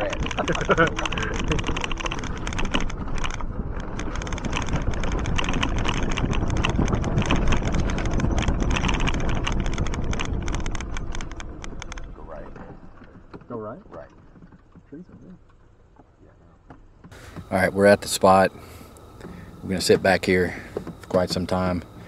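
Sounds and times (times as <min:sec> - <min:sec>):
wind buffeting microphone: 0:00.0 - 0:15.3
vehicle rattling and knocking: 0:00.0 - 0:15.7
off-road vehicle rumbling: 0:00.0 - 0:22.0.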